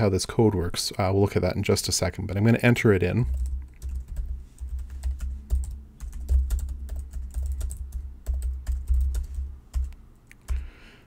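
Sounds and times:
computer keyboard typing: 3.3s - 10.7s.

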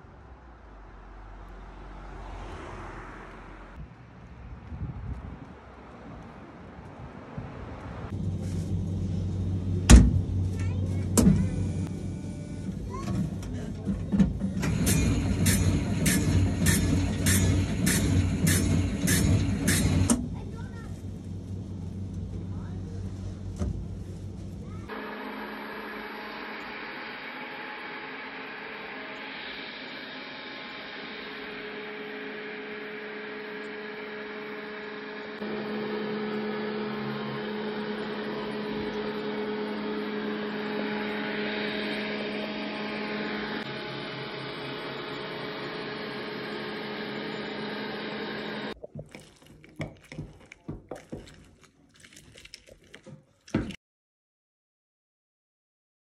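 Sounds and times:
robot vacuum humming: 24.9s - 48.8s
orange squeezed on citrus juicer: 48.7s - 53.8s.

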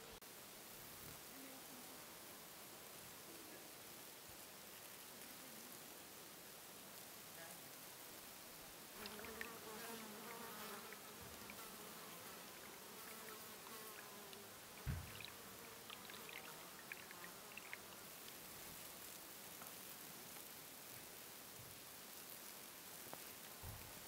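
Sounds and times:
faint hiss: 0.0s - 24.0s
flying insect buzzing: 8.4s - 19.8s
low thump: 14.8s - 15.3s.

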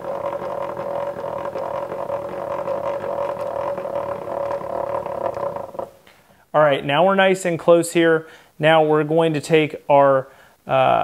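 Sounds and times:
table saw crank mechanism whirring: 0.0s - 6.0s.

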